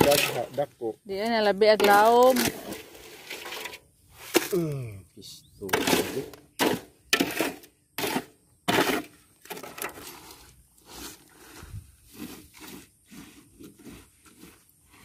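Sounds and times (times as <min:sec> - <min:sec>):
footsteps through wet grass: 0:10.0 - 0:15.0.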